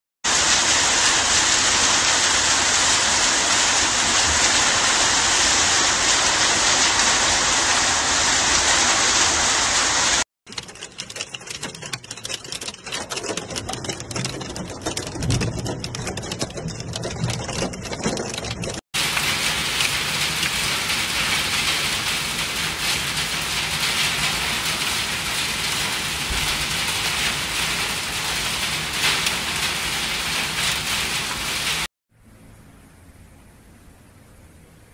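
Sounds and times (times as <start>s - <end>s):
heavy rain and hail hissing: 0.3s - 10.2s, 19.0s - 31.9s
hail on roof panels: 0.3s - 31.9s
rain heard inside car: 0.3s - 31.9s.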